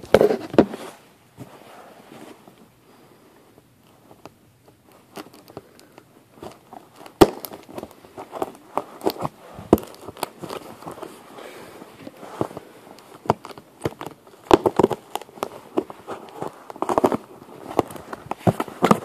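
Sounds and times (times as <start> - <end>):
packaging rustling and scraping: 0.0 - 2.7, 3.8 - 19.0.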